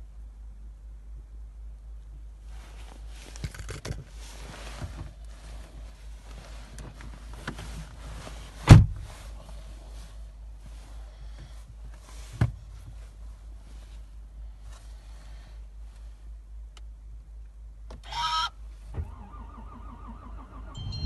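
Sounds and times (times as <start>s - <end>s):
rustling and handling clicks: 3.2s - 5.3s
steady low hum: 20.3s - 21.0s.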